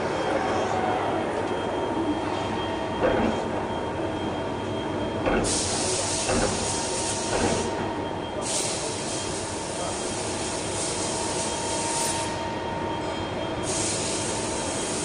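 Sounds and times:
machine shop running noise: 0.0s - 15.0s
hiss: 13.7s - 15.0s.

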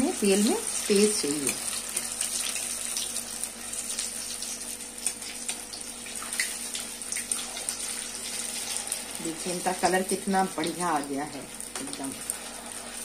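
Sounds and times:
food deep-frying in oil: 0.0s - 13.0s
oil popping and crackling: 1.3s - 9.3s.

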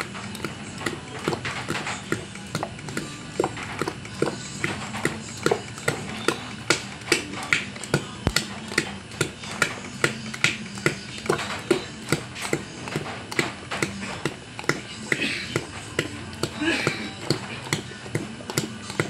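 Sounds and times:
hand slapping wet batter: 0.0s - 19.0s.

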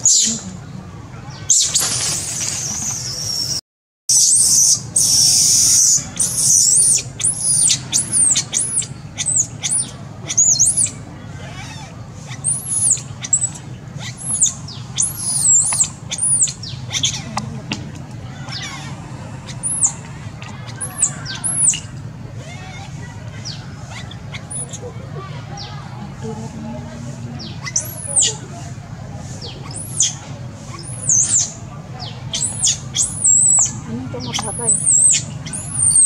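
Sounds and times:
baby monkey crying and squealing: 4.1s - 17.4s, 18.4s - 24.9s, 27.6s - 28.4s, 29.4s - 31.6s, 32.3s - 36.0s.

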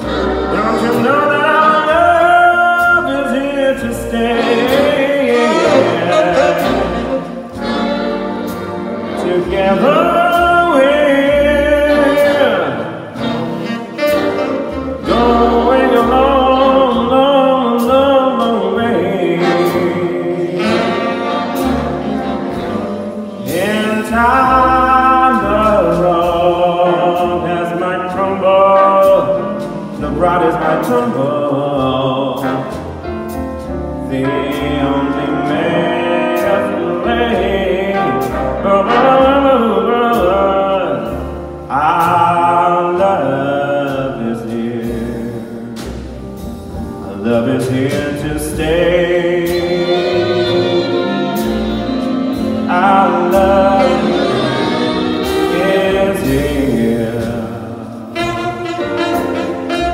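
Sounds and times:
jazz rhythm section: 0.0s - 59.9s
saxophone solo: 4.3s - 9.2s, 11.8s - 16.0s, 19.4s - 23.4s, 49.5s - 55.6s, 58.1s - 59.9s.

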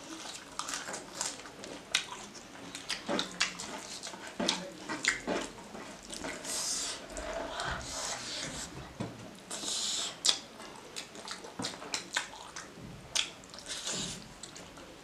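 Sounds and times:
wet chewing and lip smacks: 0.1s - 6.4s, 9.4s - 14.9s.

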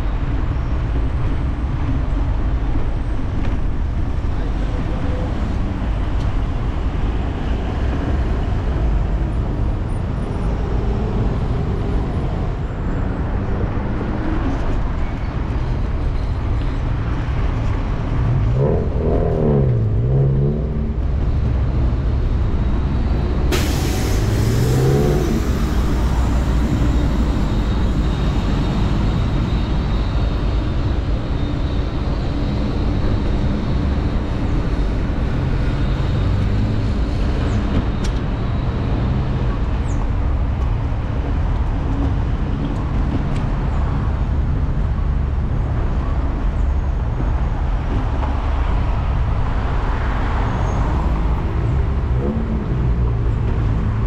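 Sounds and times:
road traffic passing: 0.0s - 54.0s
vehicle engine revving: 18.1s - 27.7s
sudden hiss: 23.5s - 26.6s.

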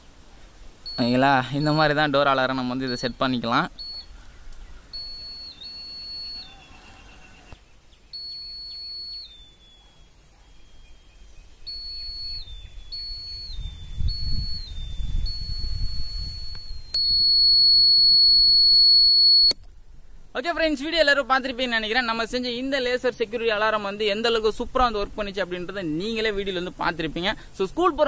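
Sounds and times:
shrill buzzer alarm tone: 4.9s - 7.6s, 8.2s - 9.6s, 11.7s - 19.5s.

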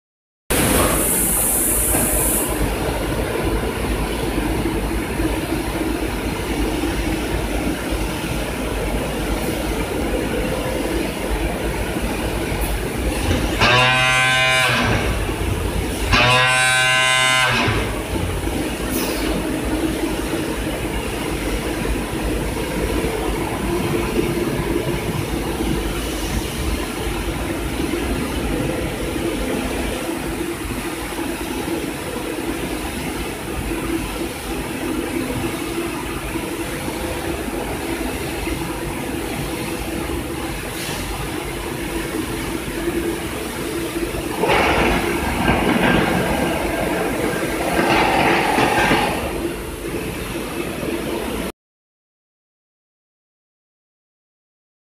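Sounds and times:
packing machinery humming: 40.0s - 50.1s.

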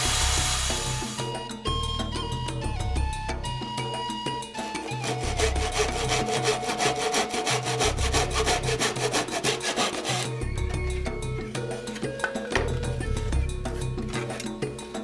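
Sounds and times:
background music: 0.0s - 15.0s
hand saw cutting plywood: 4.8s - 10.4s.

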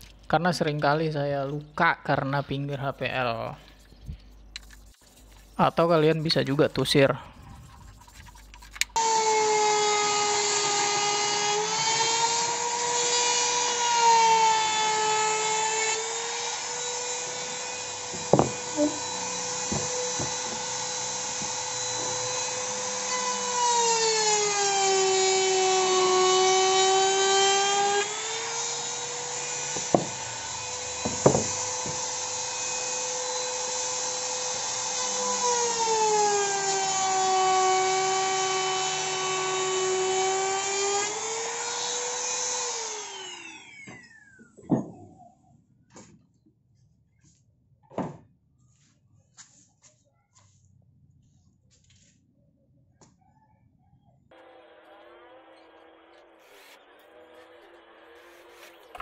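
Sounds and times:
trimmer router motor whine: 9.0s - 44.5s, 54.3s - 59.0s
sharp knocks: 18.1s - 18.7s, 29.7s - 30.2s, 31.0s - 32.1s.

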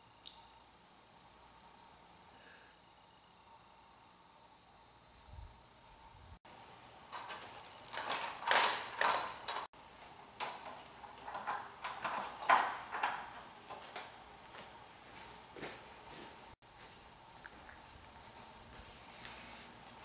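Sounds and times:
window blinds rattling: 7.0s - 15.5s.

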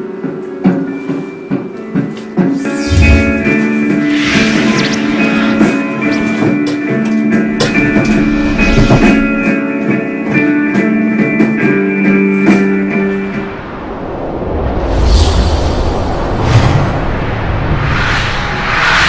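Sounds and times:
rising noisy wash: 2.6s - 9.5s, 12.9s - 19.0s.

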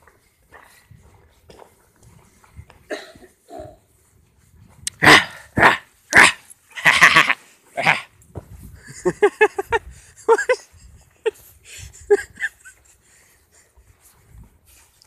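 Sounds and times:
dog barking harshly: 5.0s - 8.0s.

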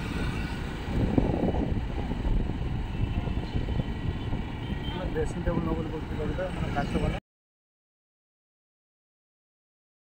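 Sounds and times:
traffic: 0.0s - 7.2s
wind buffeting microphone: 0.0s - 7.2s.

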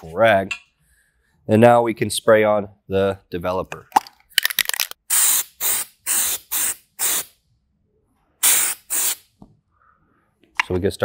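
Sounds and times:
aerosol spray hisses: 8.4s - 9.2s.

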